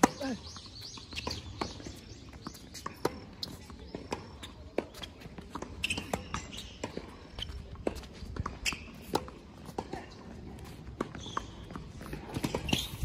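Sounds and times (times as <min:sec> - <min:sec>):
ball bouncing on hard court: 0:00.0 - 0:10.1, 0:10.7 - 0:13.0
racket striking tennis ball: 0:10.9 - 0:13.0.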